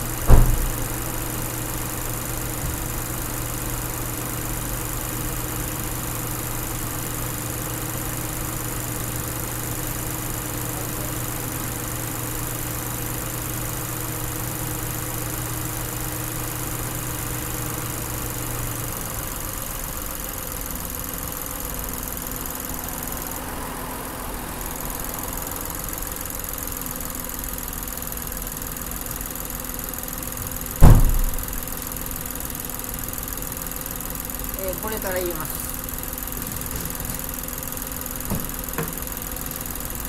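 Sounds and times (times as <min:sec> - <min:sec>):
car engine idling: 0:00.0 - 0:40.0
loud thump: 0:00.2 - 0:01.0, 0:30.8 - 0:31.6.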